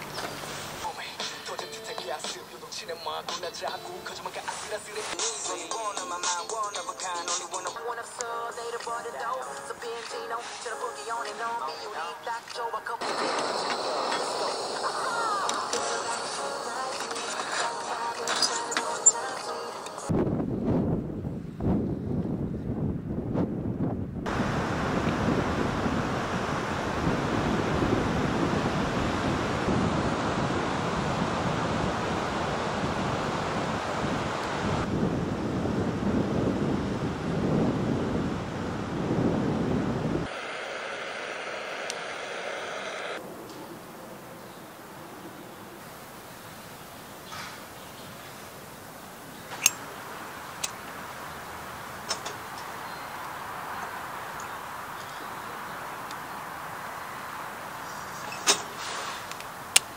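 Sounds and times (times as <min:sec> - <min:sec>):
steady hiss: 0:40.2 - 0:59.9.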